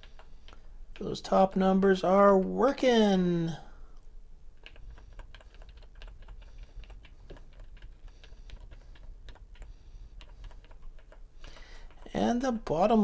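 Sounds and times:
keyboard keys clicking: 0.0 - 1.2, 4.6 - 12.2.

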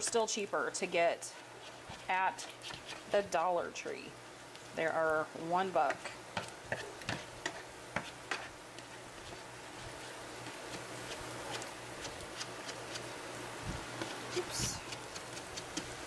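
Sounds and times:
eggs sizzling: 0.0 - 16.0
plastic spatula scraping frying pan: 1.6 - 3.2, 5.9 - 8.6.

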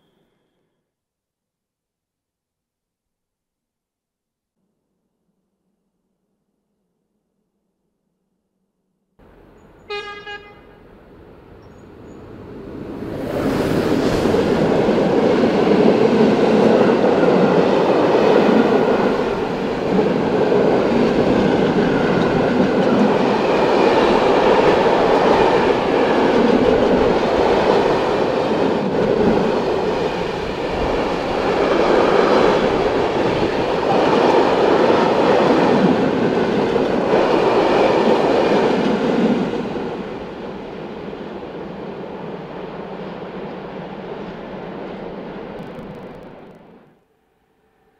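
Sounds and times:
freight train wheels rumbling on rails: 9.2 - 46.8.

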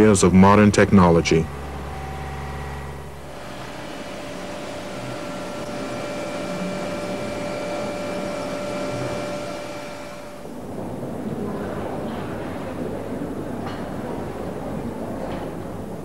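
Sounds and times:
high whining tones: 0.0 - 10.7
machine hum: 0.0 - 11.0.

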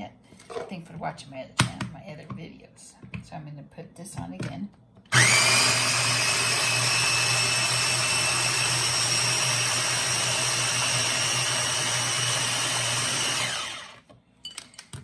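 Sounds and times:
blender motor whining: 5.1 - 14.0.

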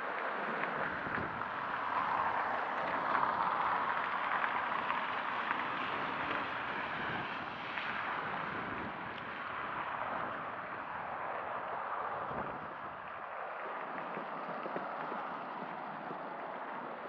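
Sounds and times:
car tyres hissing on wet road: 0.1 - 17.0.

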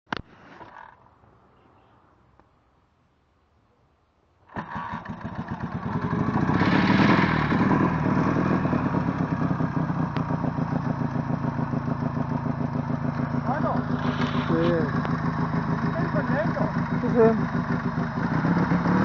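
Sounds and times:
motorcycle engine kick-started: 4.5 - 18.8
motorcycle engine idling: 4.8 - 19.0.

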